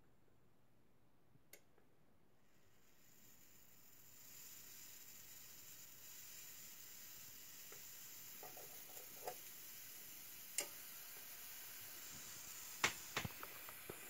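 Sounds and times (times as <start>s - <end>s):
faint steady hiss: 0.0s - 14.0s.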